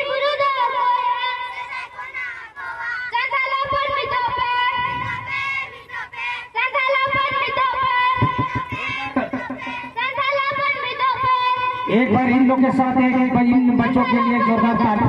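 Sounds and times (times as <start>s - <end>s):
high-pitched voices singing: 0.0s - 12.0s
fast drum beats: 7.0s - 13.8s.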